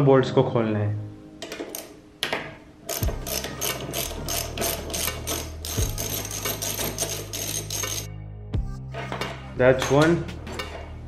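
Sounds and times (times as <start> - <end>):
ratchet wrench clicking: 2.9 - 8.1.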